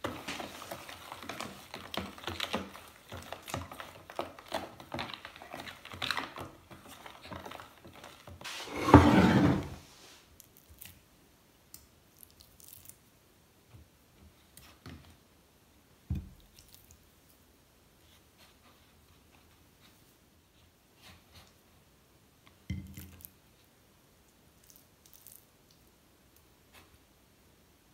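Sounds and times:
spoon scraping plastic tub: 0:00.0 - 0:09.9
bump and rub: 0:08.4 - 0:09.8.

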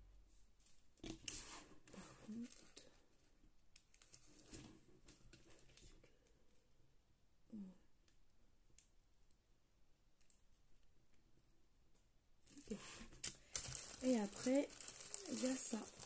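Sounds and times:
small beads rustling in plastic bag: 0:12.5 - 0:16.0.

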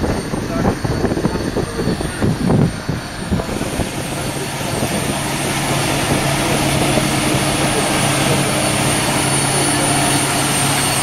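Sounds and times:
tractor diesel engine drone: 0:00.0 - 0:11.0.

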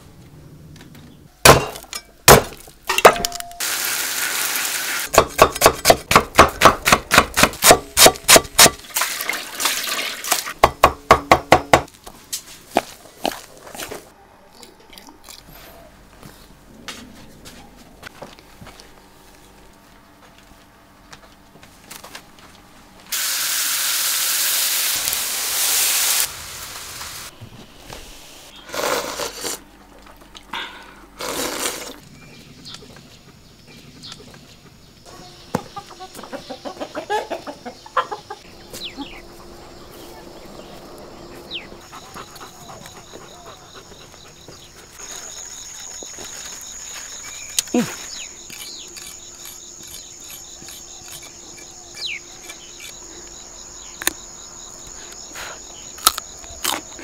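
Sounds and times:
chickens clucking: 0:34.0 - 0:45.0
high insect buzz: 0:45.0 - 0:57.0.

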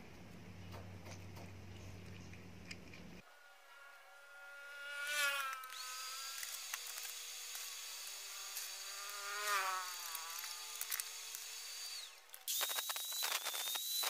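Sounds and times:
electric drill whining: 0:04.0 - 0:14.0.

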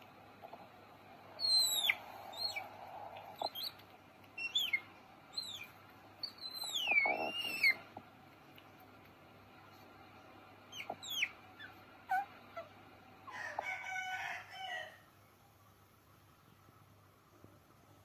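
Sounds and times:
otter squeaking: 0:04.4 - 0:07.9.

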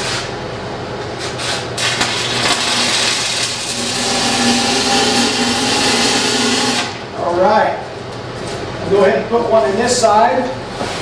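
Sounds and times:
welding arc crackling: 0:01.8 - 0:07.1.

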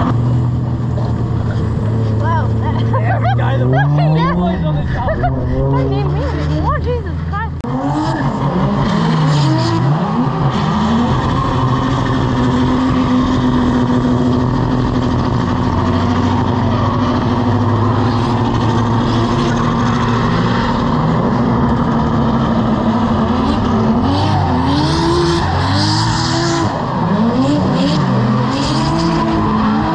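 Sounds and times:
car engine at high revs: 0:00.0 - 0:29.9.

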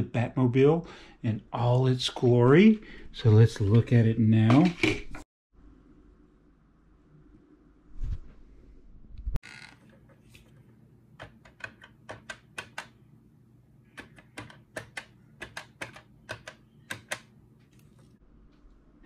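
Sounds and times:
plastic keypad clicks: 0:14.0 - 0:17.3.

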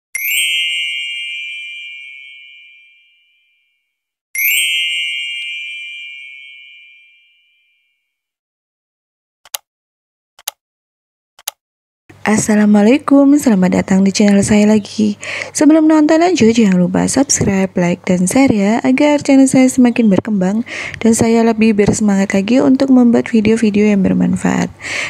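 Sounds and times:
bell-like ding chimes: 0:00.2 - 0:08.1
mouse clicks: 0:10.4 - 0:10.6, 0:11.4 - 0:11.6.

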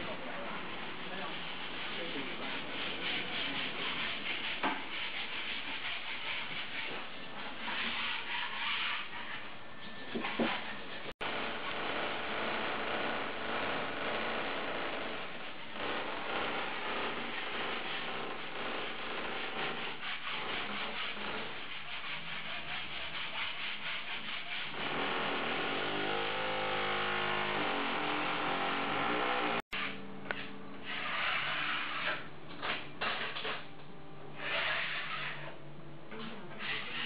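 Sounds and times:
hand rubbing wallpaper: 0:00.6 - 0:09.5, 0:19.6 - 0:24.7, 0:30.8 - 0:32.3.

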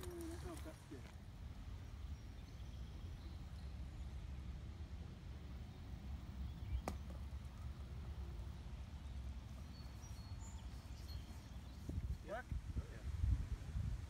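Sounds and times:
faint bird chirps: 0:05.6 - 0:12.4
disc throw snap: 0:06.8 - 0:07.3.

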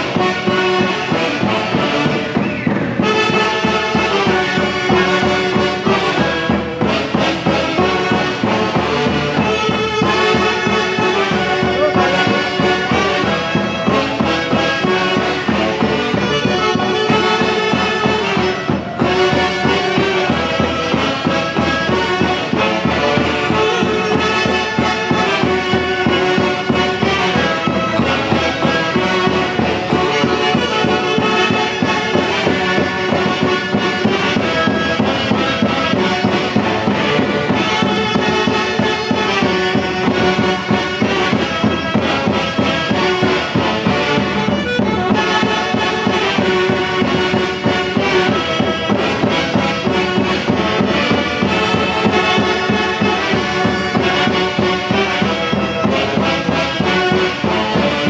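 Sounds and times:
drum kit: 0:00.0 - 0:58.0
saxophone and clarinet section: 0:00.0 - 0:58.0
bass drum steady beat: 0:11.2 - 0:12.8.

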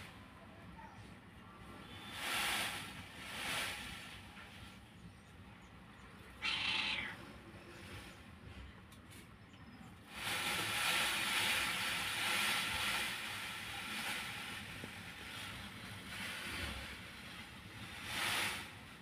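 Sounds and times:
peacock rattling feathers: 0:01.8 - 0:04.7, 0:10.1 - 0:19.0.

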